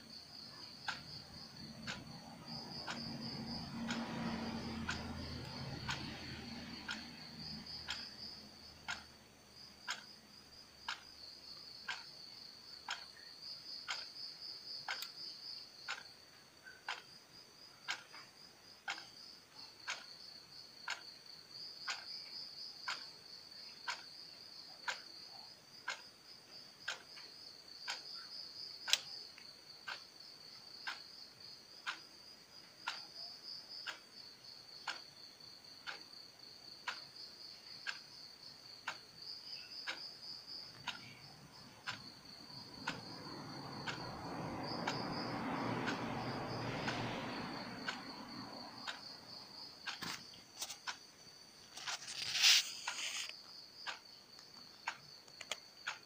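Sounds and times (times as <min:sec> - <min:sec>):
wall clock ticking: 0:00.0 - 0:56.0
high insect trill: 0:18.6 - 0:55.9.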